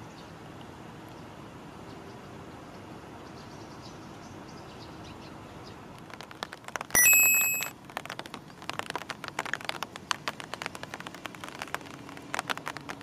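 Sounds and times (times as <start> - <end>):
clicks: 7.0 - 7.7.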